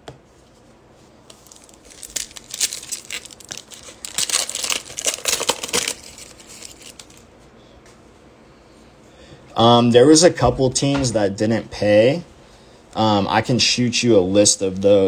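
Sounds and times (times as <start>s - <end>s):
foil wrapper tearing and crinkling: 1.3s - 7.2s.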